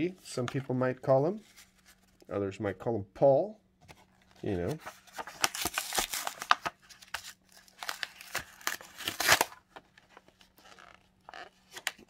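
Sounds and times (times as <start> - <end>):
stiff plastic pack crinkling: 4.8 - 12.0.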